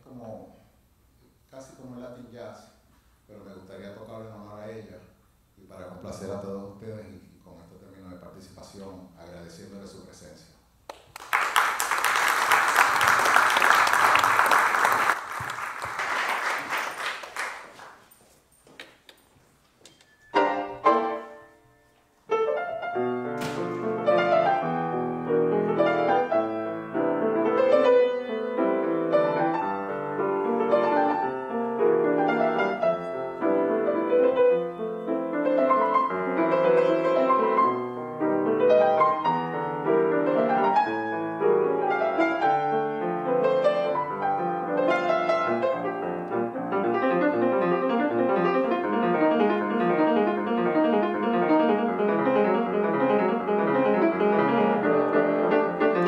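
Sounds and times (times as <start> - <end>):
audience applause: 10.9 - 18.1
solo grand piano jazz: 20.2 - 56.0.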